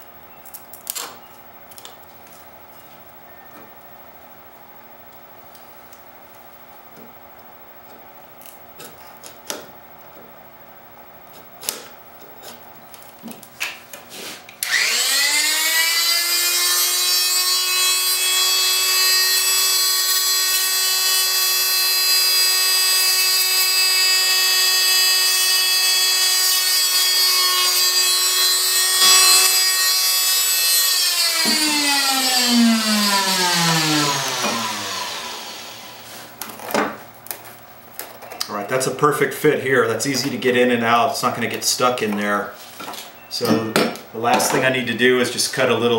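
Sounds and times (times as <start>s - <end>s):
oscillating tool buzzing: 14.6s - 36.1s.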